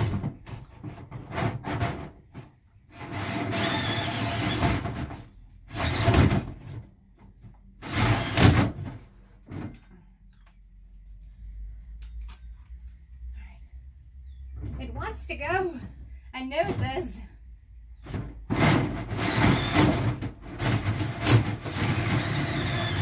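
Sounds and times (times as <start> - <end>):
cordless drill cutting metal: 3.0 - 4.8, 7.8 - 8.6, 19.1 - 20.0, 21.2 - 23.0.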